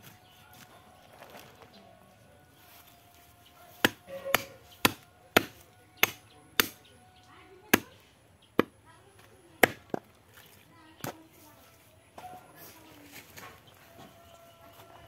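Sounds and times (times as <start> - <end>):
blade chopping on wooden block: 3.8 - 6.8.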